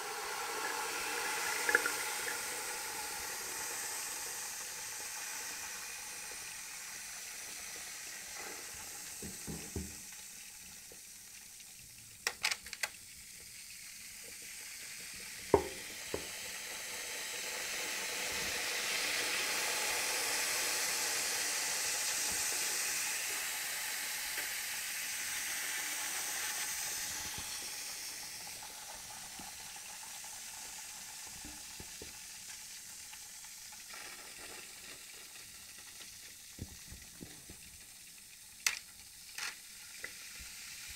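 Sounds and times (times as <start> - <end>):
chemical reaction sizzling and fizzing: 0.0 - 40.9.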